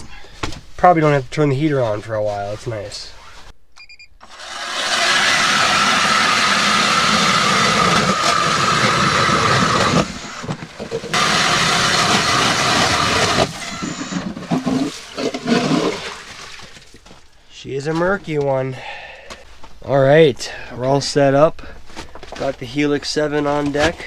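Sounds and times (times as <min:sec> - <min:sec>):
electric ice auger whining: 0:04.2 - 0:16.1.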